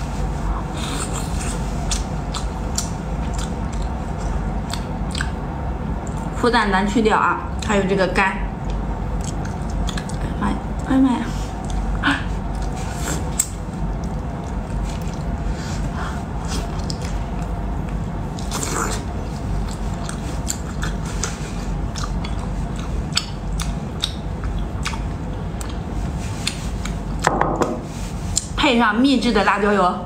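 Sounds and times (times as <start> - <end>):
woman chewing shellfish: 0.8 - 6.3, 8.6 - 10.2, 11.6 - 27.2
wet mouth clicks and smacks: 1.9 - 5.4, 8.6 - 10.2.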